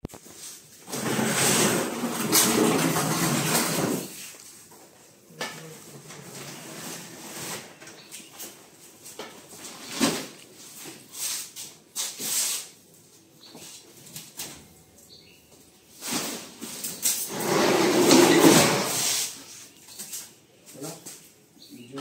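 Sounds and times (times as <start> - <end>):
wooden stand scraping on concrete: 0.4 - 4.4, 5.4 - 8.1, 16.0 - 20.1.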